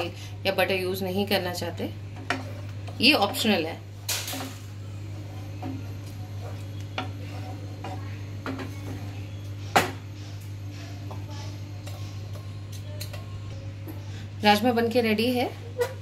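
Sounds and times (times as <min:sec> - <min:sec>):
low hum: 0:01.8 - 0:15.9
wooden spatula scraping pan: 0:05.2 - 0:09.2.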